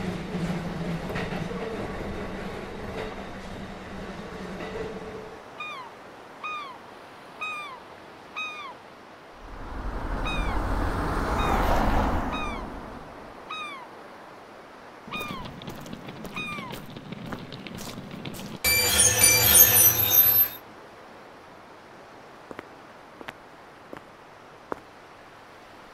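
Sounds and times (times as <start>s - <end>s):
rushing noise: 9.4s - 13.5s
gulls calling: 9.4s - 13.9s, 15.1s - 17.0s.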